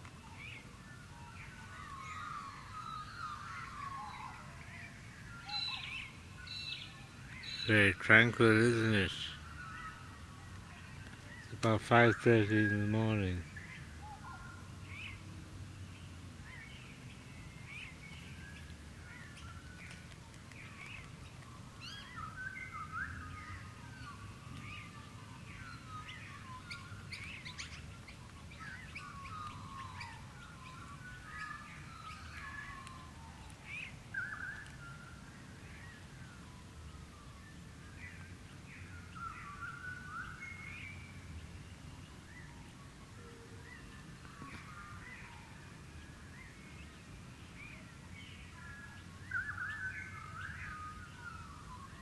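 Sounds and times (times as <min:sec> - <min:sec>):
birds chirping and whistling: 0:00.0 - 0:15.2, 0:16.4 - 0:52.0.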